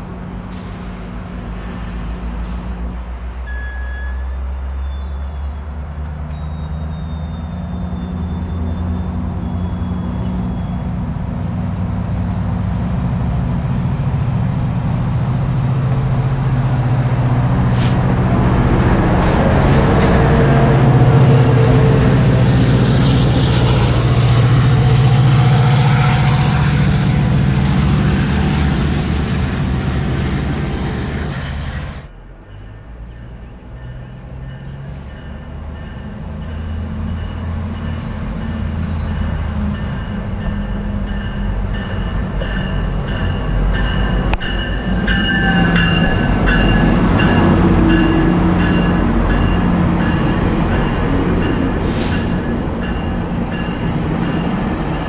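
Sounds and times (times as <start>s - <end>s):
train passing with engine hum: 0.0s - 55.0s
train pulling into platform: 0.0s - 55.0s
high-pitched wheel squeal: 6.3s - 11.0s, 50.7s - 55.0s.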